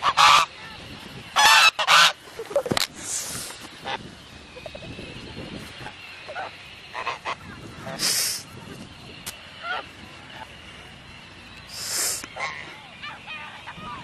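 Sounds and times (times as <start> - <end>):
geese honking: 0.0 - 14.0
goose hissing: 2.8 - 4.0, 4.6 - 8.6, 11.6 - 12.9.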